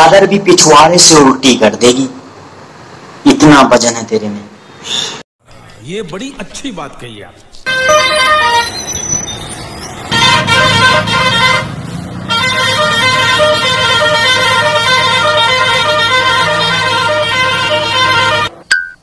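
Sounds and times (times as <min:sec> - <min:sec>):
truck horn blaring: 0:07.7 - 0:18.6.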